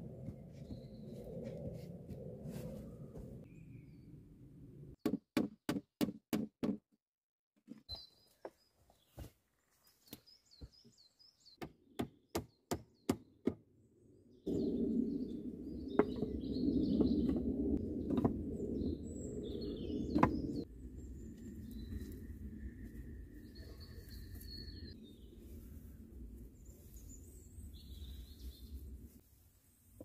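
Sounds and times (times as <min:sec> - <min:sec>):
hatchet chopping wood: 0:11.6 - 0:13.6
birds chirping: 0:14.5 - 0:22.1.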